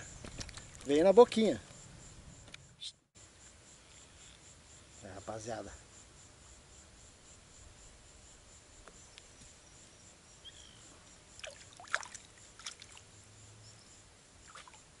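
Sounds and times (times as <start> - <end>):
high insect trill: 0.0 - 15.0
water splashes and sloshes: 11.4 - 13.1, 14.4 - 14.9.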